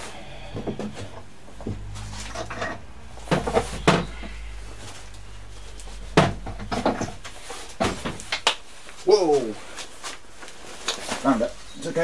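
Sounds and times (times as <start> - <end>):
wooden knocks and tool clatter: 0.6 - 5.0, 5.8 - 8.5.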